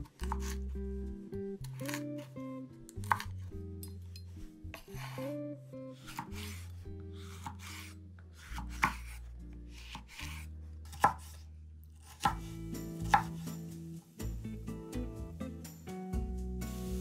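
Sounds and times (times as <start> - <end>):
knife slicing pepper: 0.0 - 0.7, 1.6 - 3.5, 4.8 - 5.4, 6.0 - 13.5.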